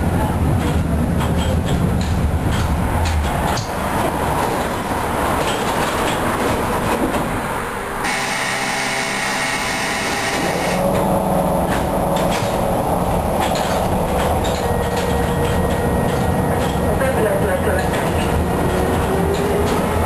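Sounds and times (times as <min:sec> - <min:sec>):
tram wheels rumbling on rail: 0:00.0 - 0:20.0
rail clicks: 0:00.1 - 0:20.0
high tonal whine: 0:08.0 - 0:11.6.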